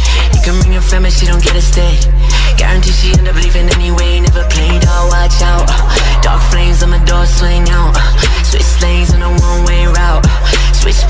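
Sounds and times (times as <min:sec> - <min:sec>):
rapping over a beat: 0:00.0 - 0:11.0
deep bass note: 0:04.3 - 0:09.3.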